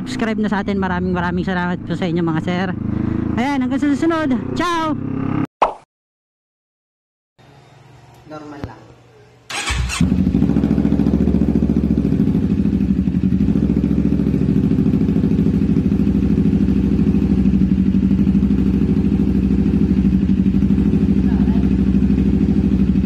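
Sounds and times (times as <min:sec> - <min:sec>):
motorcycle engine cranking: 0:09.5 - 0:10.6
motorcycle engine idling: 0:09.5 - 0:23.0.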